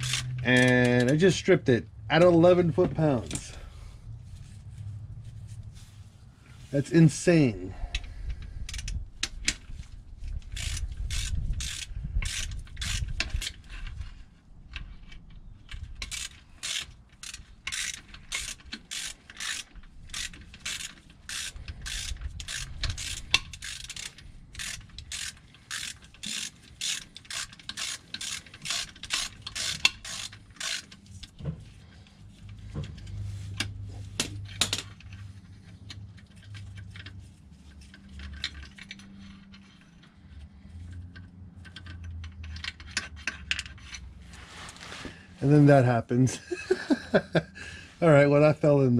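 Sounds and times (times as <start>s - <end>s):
hand ratchet clicking: 0.0s - 1.3s, 7.9s - 9.6s, 10.4s - 14.0s, 15.7s - 31.4s, 37.8s - 44.1s.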